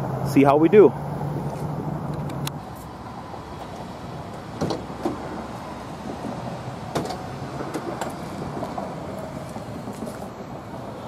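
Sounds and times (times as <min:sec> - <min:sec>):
van doors unlatching clicks and clunks: 0:03.6 - 0:10.2.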